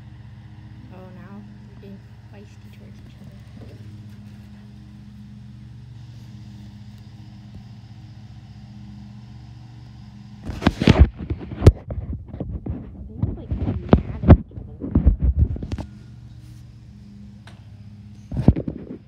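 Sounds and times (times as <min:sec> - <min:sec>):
low mechanical hum: 0:00.0 - 0:19.0
loud thumps and rumbles: 0:10.4 - 0:15.9.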